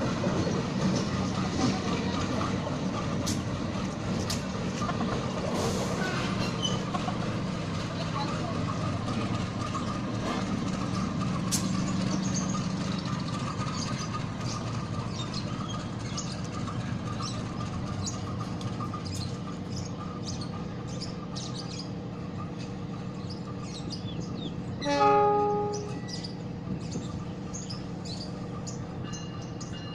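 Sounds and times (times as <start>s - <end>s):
locomotive engine running: 0.0s - 29.9s
birds chirping: 6.0s - 29.9s
locomotive horn blast: 24.8s - 26.2s.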